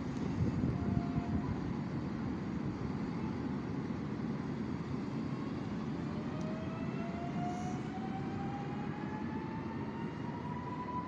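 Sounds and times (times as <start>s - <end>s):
train low rumble: 0.0s - 11.0s
train traction motor whine: 4.2s - 11.0s.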